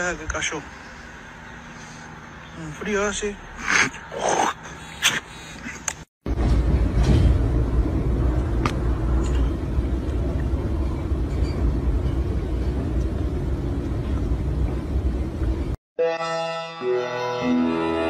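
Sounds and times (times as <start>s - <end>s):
low background rumble: 6.3s - 15.8s.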